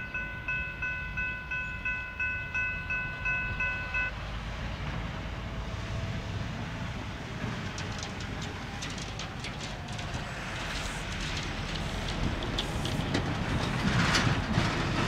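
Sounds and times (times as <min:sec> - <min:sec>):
crossing bell ringing: 0:00.0 - 0:04.2
freight train rumble: 0:00.0 - 0:15.0.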